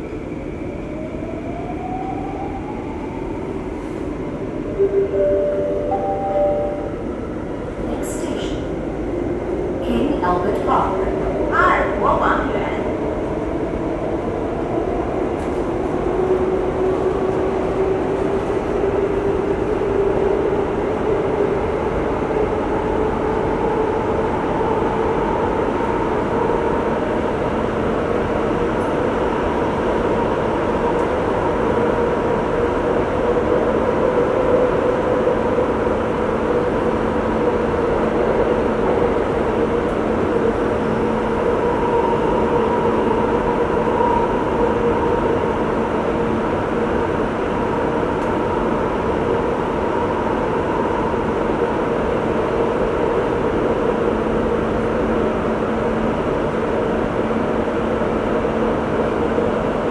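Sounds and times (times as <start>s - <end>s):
subway train rumble: 0.0s - 59.9s.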